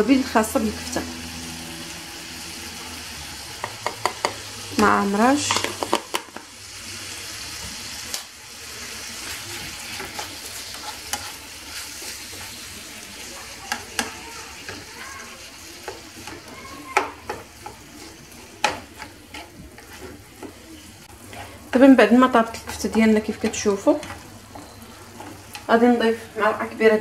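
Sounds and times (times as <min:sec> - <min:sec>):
meat sizzling in a frying pan: 0:00.0 - 0:27.0
plastic spoon scraping pan: 0:09.2 - 0:12.6, 0:17.2 - 0:21.6.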